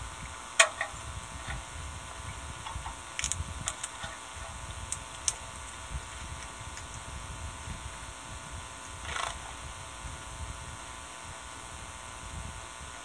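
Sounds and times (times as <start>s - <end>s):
sunflower seeds cracking: 3.1s - 4.1s, 4.7s - 7.1s.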